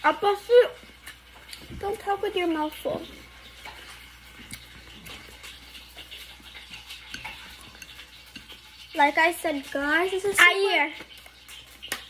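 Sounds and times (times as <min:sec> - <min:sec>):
chewing: 0:00.8 - 0:01.8, 0:03.0 - 0:09.0.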